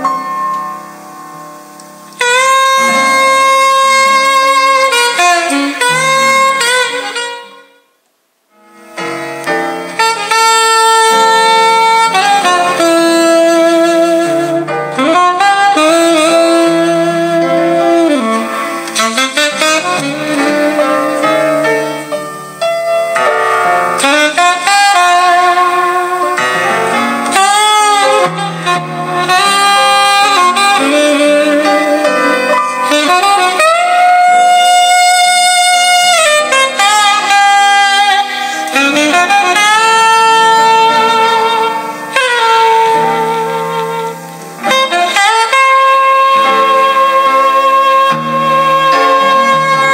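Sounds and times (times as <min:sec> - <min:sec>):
saxophone jazz from speakers: 0:00.0 - 0:49.9.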